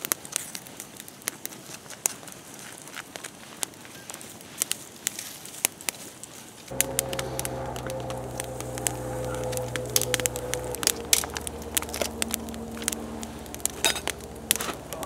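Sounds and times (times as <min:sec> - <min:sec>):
campfire crackling and popping: 0:06.7 - 0:15.0
steady low hum: 0:06.7 - 0:15.0.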